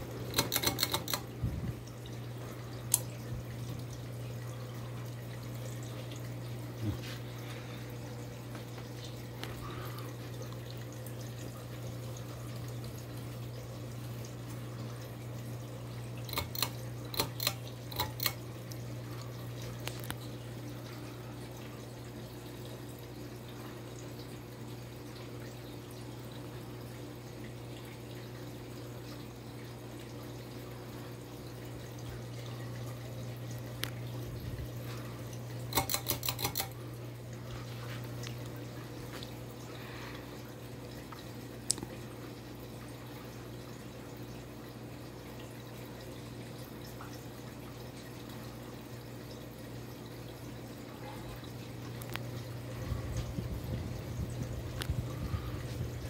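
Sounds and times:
ceiling fan motor hum: 0.0s - 56.0s
sharp clicks: 0.3s - 1.2s.

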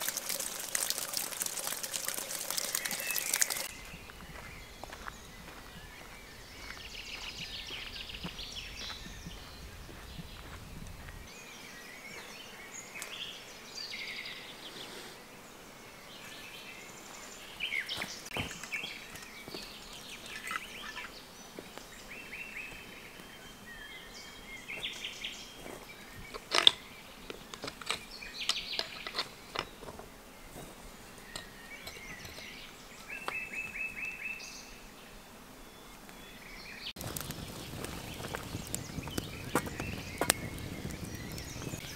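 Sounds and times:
outdoor background: 0.0s - 41.9s
birds chirping and trilling: 2.1s - 41.9s.

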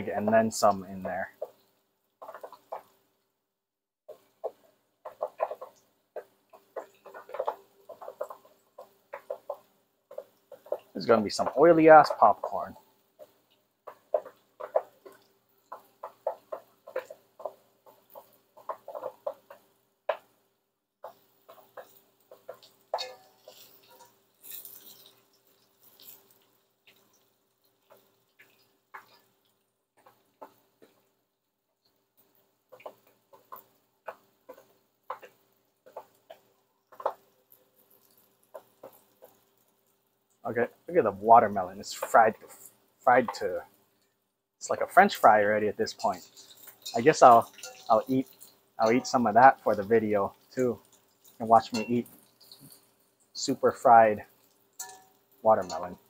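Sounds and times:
popcorn popping in oil: 0.0s - 3.1s, 4.1s - 56.0s
light clicks and taps: 4.1s - 20.3s.

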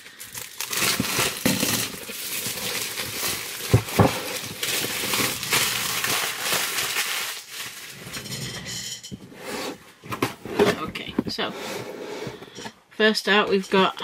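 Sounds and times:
packaging rustling and crinkling: 0.0s - 8.4s.

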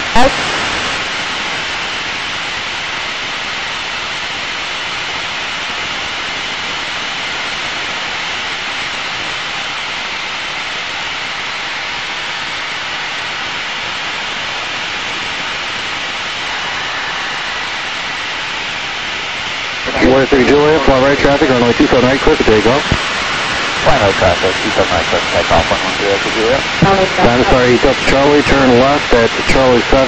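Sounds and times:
jet engine and rushing air: 14.5s - 29.6s.

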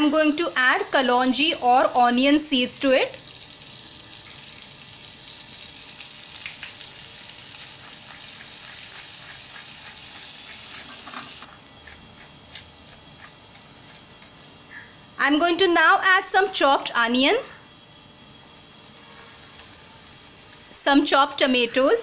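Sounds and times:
oil sizzling: 0.0s - 11.5s, 18.4s - 22.0s.

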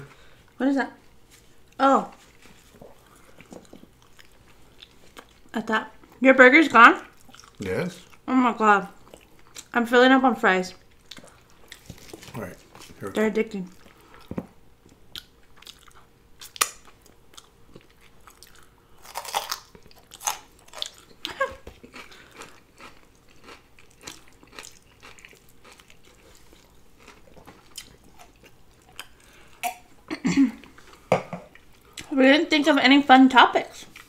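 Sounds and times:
person chewing food: 1.4s - 6.2s, 7.0s - 8.3s, 8.9s - 9.7s, 10.8s - 32.1s
food crunching: 7.0s - 8.3s, 10.8s - 29.9s.

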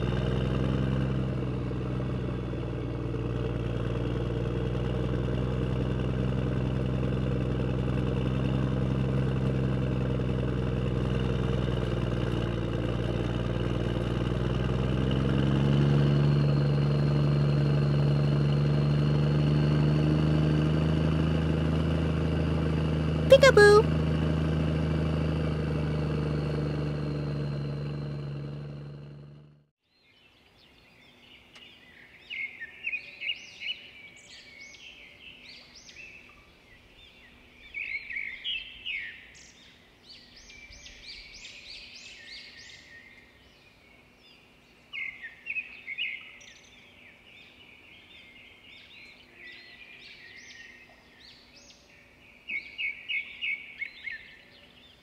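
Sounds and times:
small birds chirping: 29.9s - 55.0s.

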